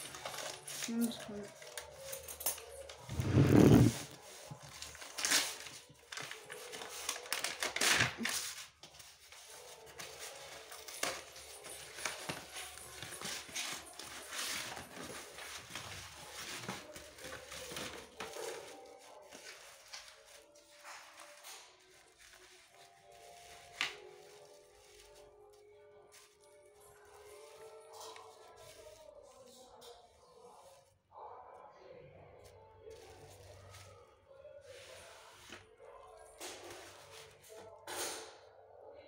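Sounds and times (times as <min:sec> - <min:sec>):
packaging rustling and crinkling: 0:00.0 - 0:29.4.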